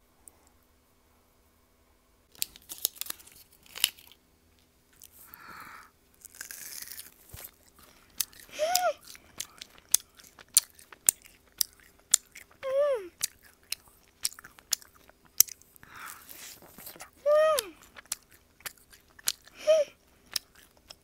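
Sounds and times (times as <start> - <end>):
sticky chewing mouth clicks: 6.2 - 19.6, 20.2 - 21.0
person humming mm: 8.5 - 9.0, 12.6 - 13.2, 15.9 - 17.9, 19.6 - 20.0.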